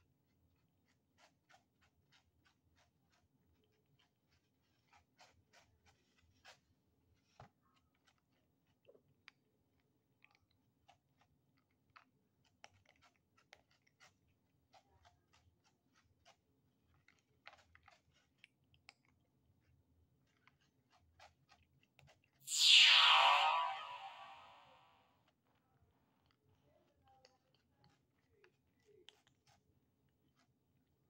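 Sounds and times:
kittens crunching dry kibble: 0:09.8 - 0:21.9.

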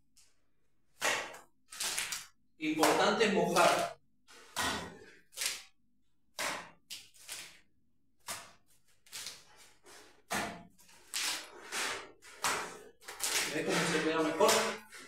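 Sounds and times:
trowel slapping wet mortar: 0:00.9 - 0:15.0.

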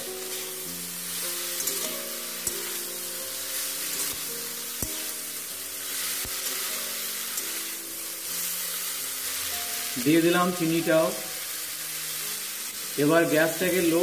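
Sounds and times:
soft background music: 0:00.0 - 0:14.0
vegetables sizzling in oil: 0:00.0 - 0:14.0
metal spatula stirring: 0:00.2 - 0:10.0
spatula tapping pan: 0:03.8 - 0:05.2.

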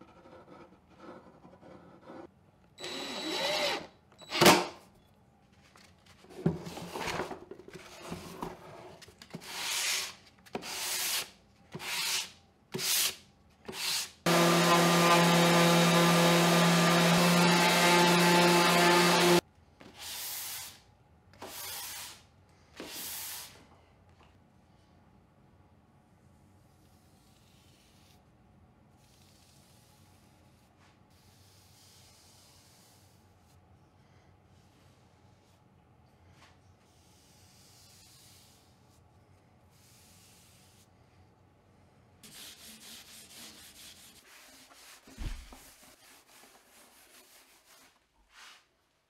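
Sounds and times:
electric orbital sander running: 0:14.3 - 0:19.4
rubbing strokes: 0:42.3 - 0:48.7.

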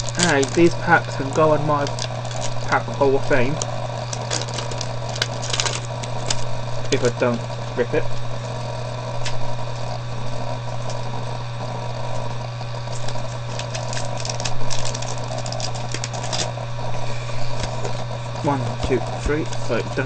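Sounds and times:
foil wrapper crinkling and tearing: 0:00.0 - 0:07.4, 0:09.1 - 0:10.0, 0:12.8 - 0:18.2
steady low hum: 0:00.0 - 0:20.0.

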